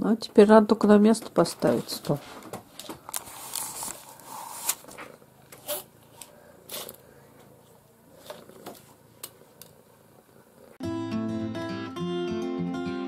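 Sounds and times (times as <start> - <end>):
paper rustling: 1.6 - 7.0.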